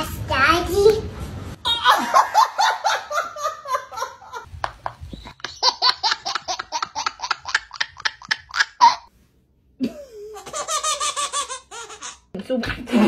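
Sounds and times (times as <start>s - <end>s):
laughter bursts: 1.7s - 9.0s
baby laughing: 5.3s - 9.1s, 10.0s - 12.3s.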